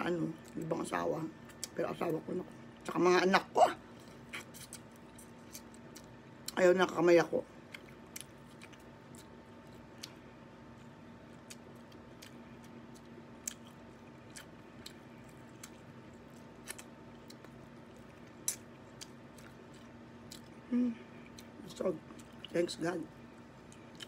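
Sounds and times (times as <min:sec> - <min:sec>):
steady low hum: 0:00.0 - 0:24.0
faint chewing: 0:07.7 - 0:22.6, 0:23.4 - 0:24.0.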